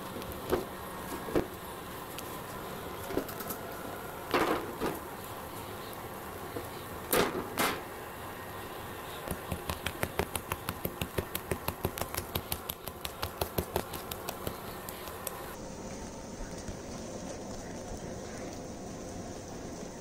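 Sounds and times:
hand slapping batter in bowl: 9.4s - 15.4s.

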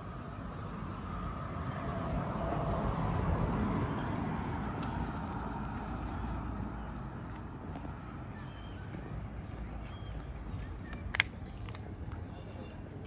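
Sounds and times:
vehicle passing by: 0.0s - 9.8s.

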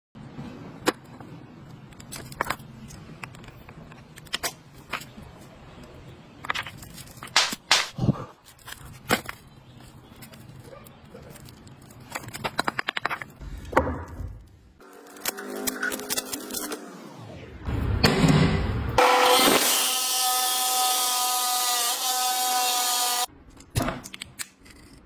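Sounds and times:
plastic wrapping rustling: 6.5s - 7.4s, 8.4s - 13.4s.

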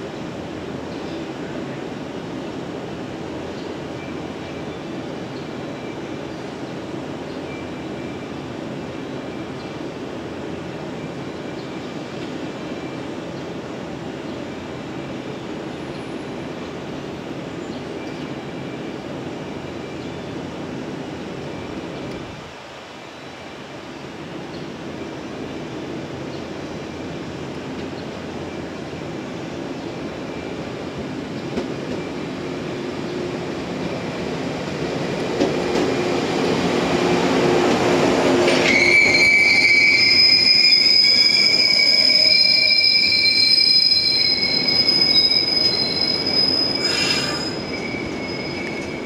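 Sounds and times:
electric train rumbling: 0.0s - 49.0s
high-pitched wheel squeal: 38.6s - 49.0s.

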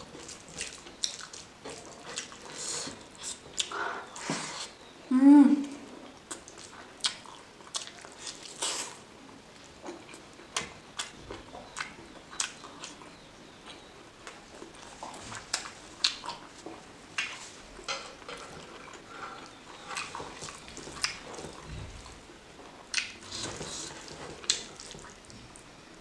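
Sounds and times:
wet chewing and mouth clicks: 0.0s - 4.3s, 6.0s - 9.0s, 9.6s - 25.7s
fingers squishing rice and curry: 22.9s - 25.3s.

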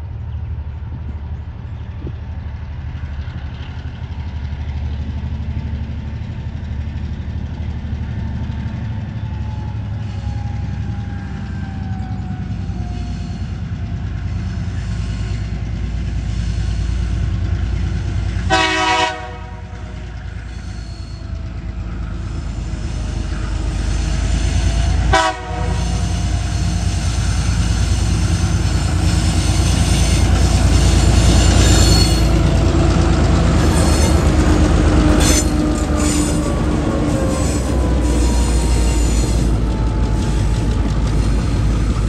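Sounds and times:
diesel locomotive engines rumbling: 0.0s - 42.0s
train horn blast: 18.4s - 20.2s, 24.7s - 32.4s.

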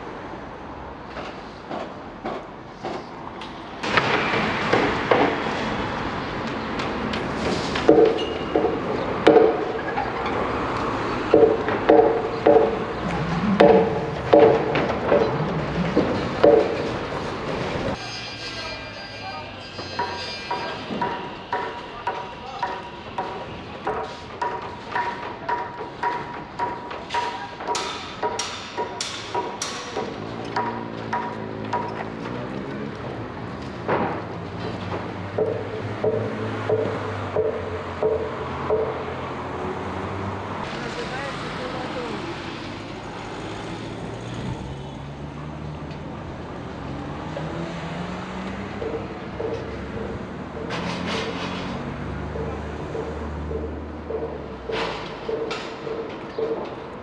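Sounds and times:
sharp ringing knocks: 7.8s - 10.4s, 11.2s - 17.0s, 18.0s - 32.3s, 34.9s - 39.4s, 48.4s - 56.9s.

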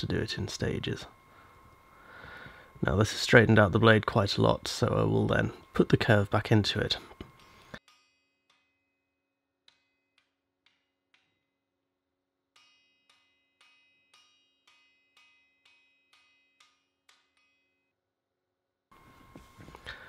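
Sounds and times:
hammer striking steel on anvil: 4.8s - 11.6s, 12.5s - 17.9s.

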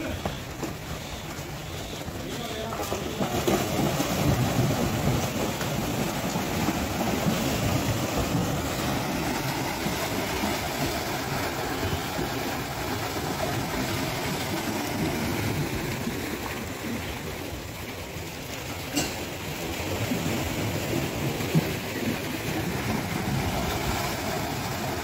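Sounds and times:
water splashing and churning: 0.0s - 25.0s.

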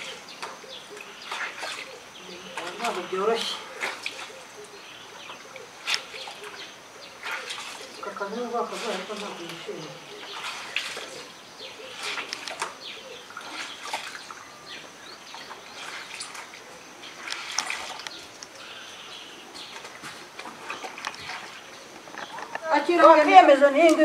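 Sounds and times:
water splashing in plastic basin: 0.0s - 1.9s, 2.5s - 4.4s, 7.2s - 14.5s, 15.3s - 18.5s, 19.6s - 21.7s
birds chirping: 0.0s - 24.0s.

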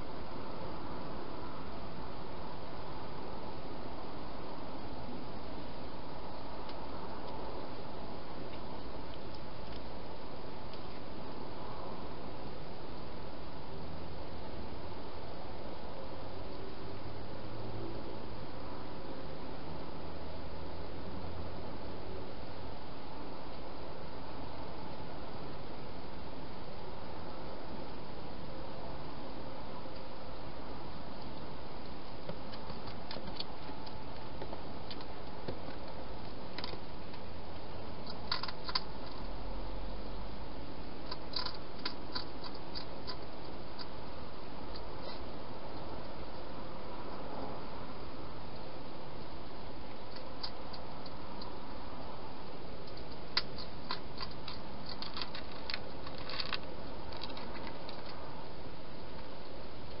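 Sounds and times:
animals crunching dry food: 38.0s - 39.3s, 41.0s - 43.9s, 52.9s - 58.2s.

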